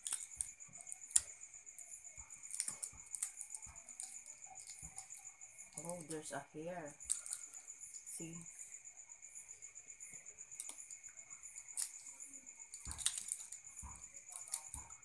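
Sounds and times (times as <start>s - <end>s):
eggshell cracking while peeled: 0.0s - 1.4s, 2.2s - 6.2s, 6.9s - 7.7s, 10.6s - 10.9s, 11.6s - 14.9s.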